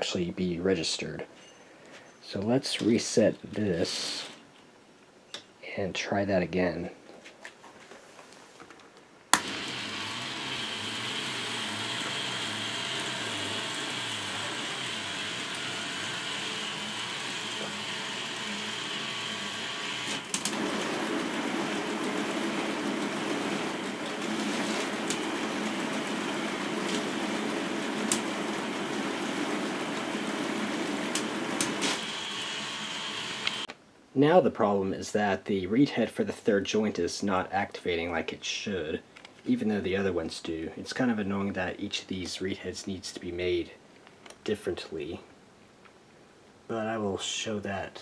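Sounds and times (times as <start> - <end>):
motor-driven plastic gears running: 9.4 - 33.7
sharp clicks: 20.0 - 20.6, 25.1 - 25.3, 28.0 - 28.3, 31.1 - 32.0.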